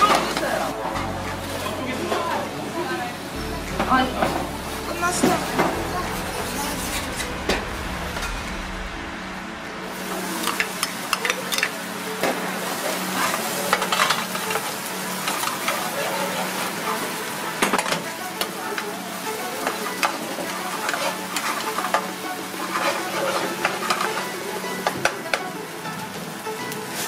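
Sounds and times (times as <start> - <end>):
food sizzling in hot oil: 9.9 - 27.0.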